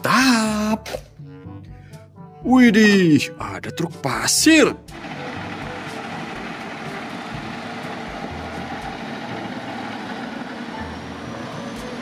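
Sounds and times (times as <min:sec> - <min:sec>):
road noise: 0:04.9 - 0:12.0
truck diesel engine running: 0:04.9 - 0:12.0.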